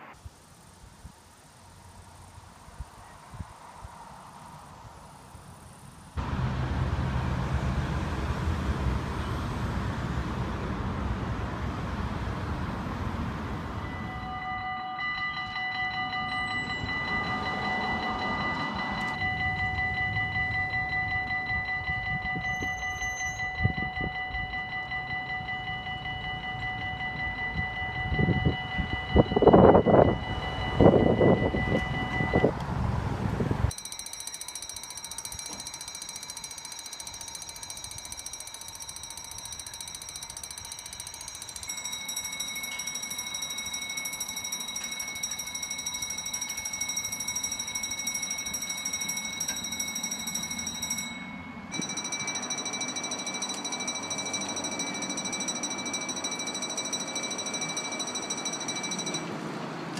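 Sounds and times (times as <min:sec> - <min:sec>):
higher electronic crossing bell: 0:13.7 - 0:32.6, 0:33.7 - 0:59.8
electronic crossing bell: 0:13.8 - 0:32.6, 0:33.7 - 0:59.8.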